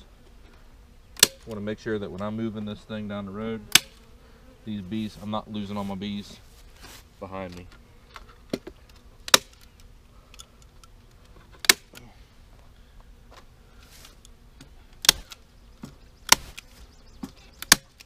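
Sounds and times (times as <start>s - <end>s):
bees humming: 0.0s - 18.0s
staple gun firing into wood: 1.2s - 1.5s, 3.7s - 4.0s, 9.3s - 9.7s, 11.6s - 12.0s, 15.0s - 15.4s, 17.6s - 18.0s.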